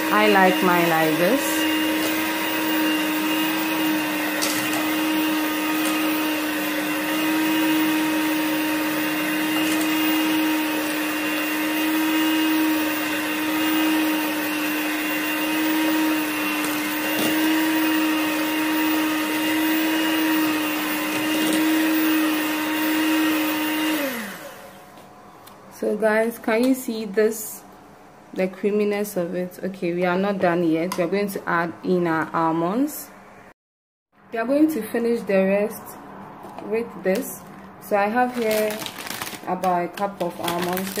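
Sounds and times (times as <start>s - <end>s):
electric hand mixer humming: 0.0s - 25.0s.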